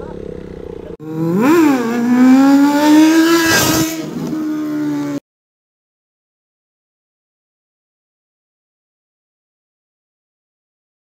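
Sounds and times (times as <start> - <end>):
motorcycle engine revving: 0.0 - 5.2.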